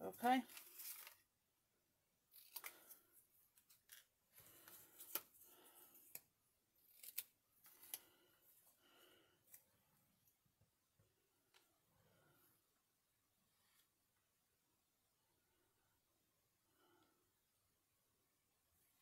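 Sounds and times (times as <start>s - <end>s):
paper rustling: 0.4s - 1.3s
scissors snipping paper: 5.9s - 8.0s.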